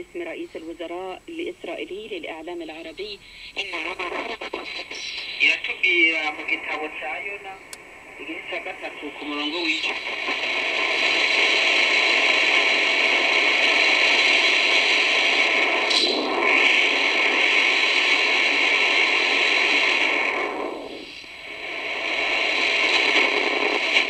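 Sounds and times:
shortwave radio static hiss: 0.0 - 24.0.

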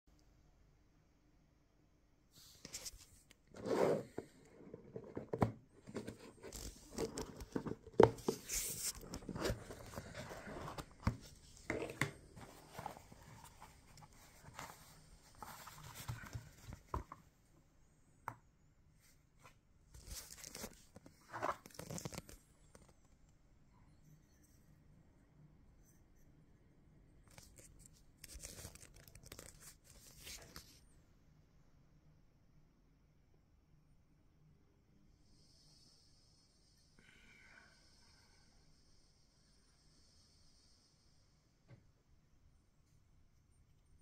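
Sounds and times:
wrapping rustling and scraping: 2.4 - 17.2, 20.0 - 22.9.

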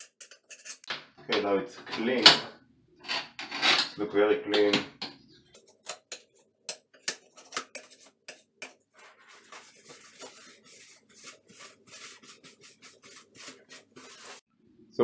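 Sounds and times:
metal tool scraping tile: 0.0 - 0.9, 3.0 - 4.0, 6.1 - 14.4
paper towel rubbing: 7.3 - 14.5.

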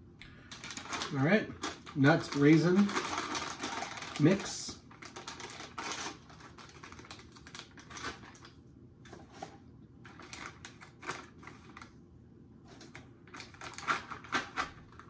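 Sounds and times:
plastic pouch crinkling: 0.4 - 8.6.

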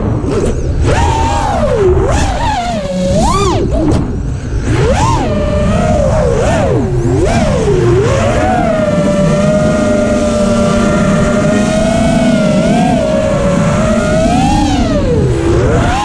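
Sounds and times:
drone motors whining: 0.0 - 16.0
wind rushing on microphone: 0.0 - 16.0.

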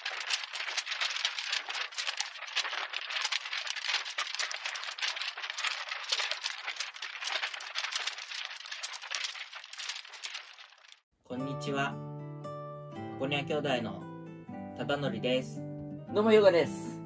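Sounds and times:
rapid rattling crackle: 0.0 - 11.1.

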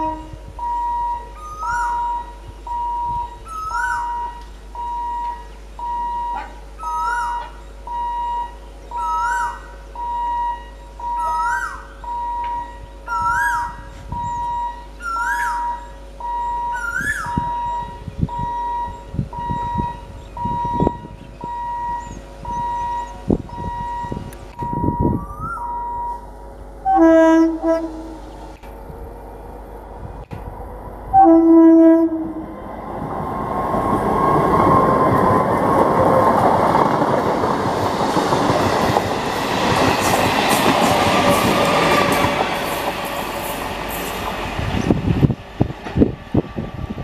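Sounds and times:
level crossing warning beeps: 0.0 - 26.3
whistle-like call: 6.8 - 9.6, 10.2 - 20.0, 24.7 - 26.2
train wheels knocking and rumbling: 32.5 - 47.0.

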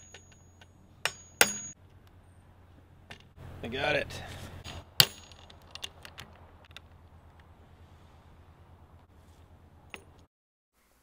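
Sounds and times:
hammer clinking on metal: 0.0 - 1.8
low steady hum: 0.0 - 10.2
small metal parts clicking: 5.0 - 6.9.

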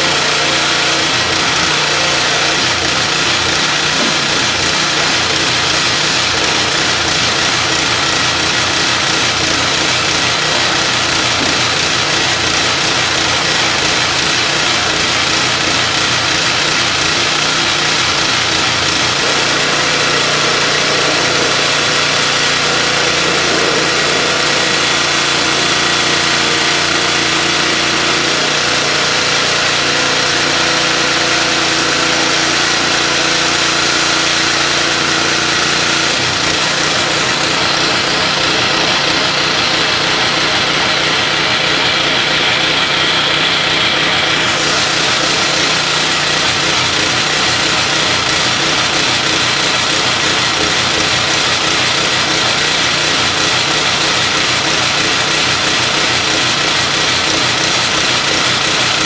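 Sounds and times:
pitched motor tone: 0.0 - 58.4
pressure washer jet hissing: 0.0 - 59.0
pump motor hum: 0.0 - 59.0.

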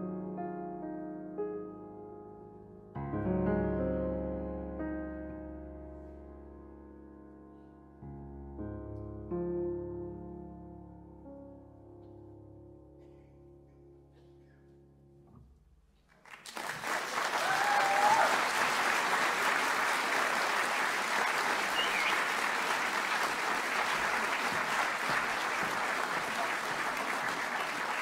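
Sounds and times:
audience applause: 16.2 - 28.0
brief cheer: 17.1 - 19.9, 21.1 - 23.2.

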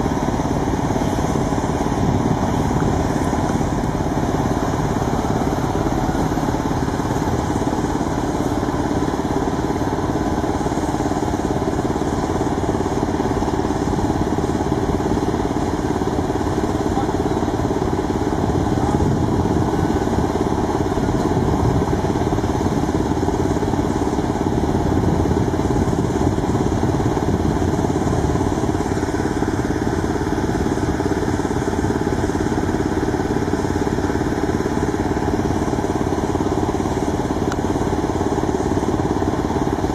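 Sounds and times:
engine running steadily: 0.0 - 39.9.

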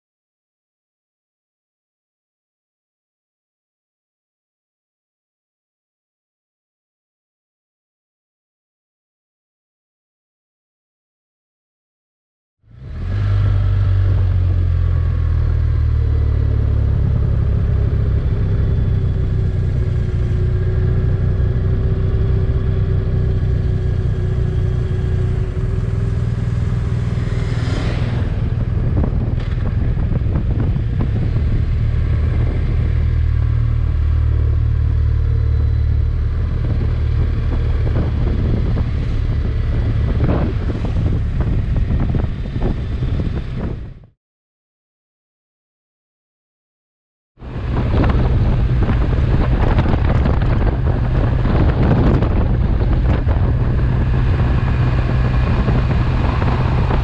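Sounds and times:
wind and road noise: 12.6 - 44.2, 47.4 - 57.0
motorcycle engine running: 13.5 - 44.0, 47.4 - 57.0
car passing: 24.0 - 38.1.

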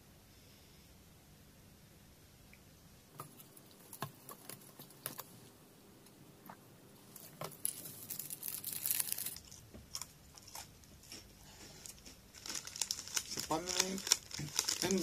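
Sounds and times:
wrapper crinkling: 7.1 - 10.7, 12.3 - 15.0.

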